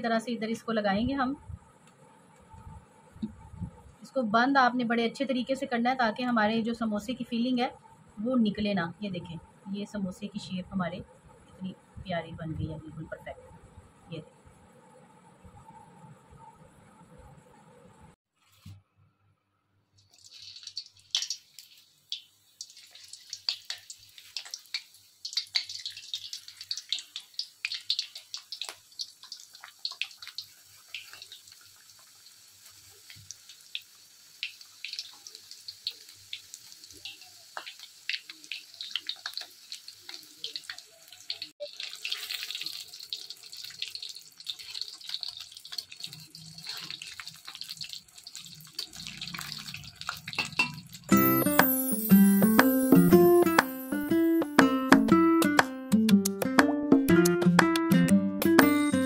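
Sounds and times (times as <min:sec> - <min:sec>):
food sizzling in hot oil: 0:20.0 - 0:54.7.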